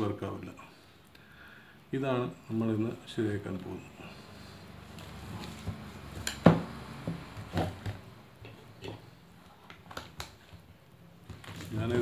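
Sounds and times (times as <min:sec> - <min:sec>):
plastic lantern knocking and clattering: 0:05.7 - 0:08.6.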